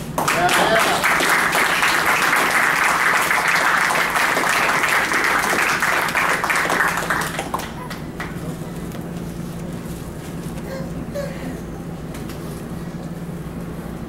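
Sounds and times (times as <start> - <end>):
small group applauding: 0.0 - 8.8.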